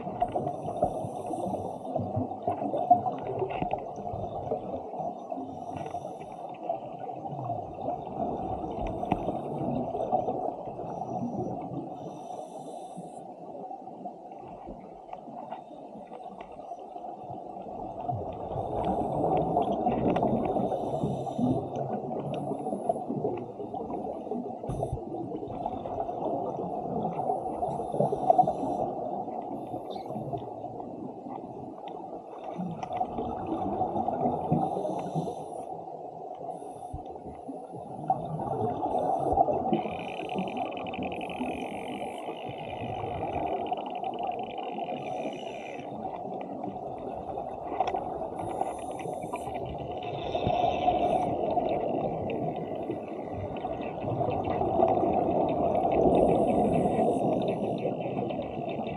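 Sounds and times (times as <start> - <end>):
underwater regulator bubbling: 36.5 - 58.9.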